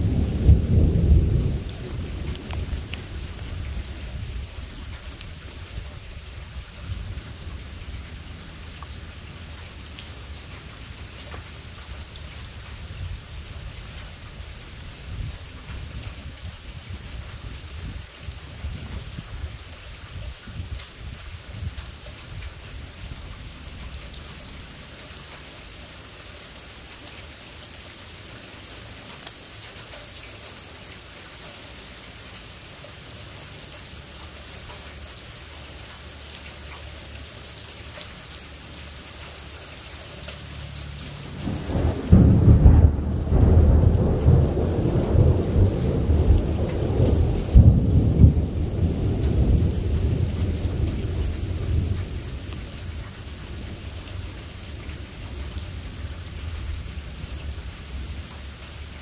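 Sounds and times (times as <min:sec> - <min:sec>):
thunder rumbling: 0:00.0 - 0:10.4, 0:41.3 - 0:58.4
steady rain: 0:00.0 - 0:59.0.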